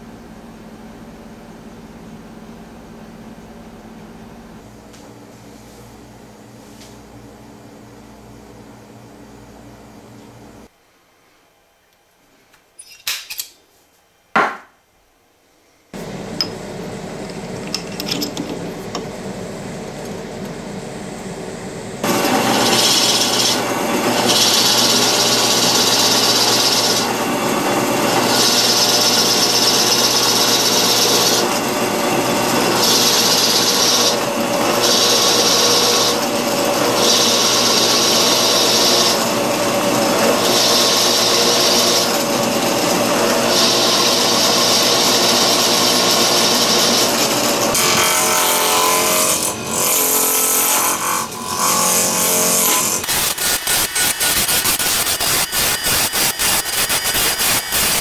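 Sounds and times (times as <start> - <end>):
drill press motor running: 16.0 - 48.0
drill bit cutting wood: 22.0 - 58.0.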